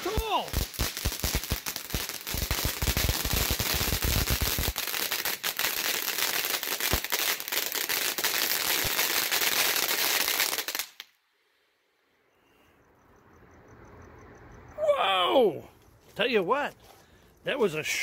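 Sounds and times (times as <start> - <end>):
fountain firework hissing sparks: 0.0 - 11.0.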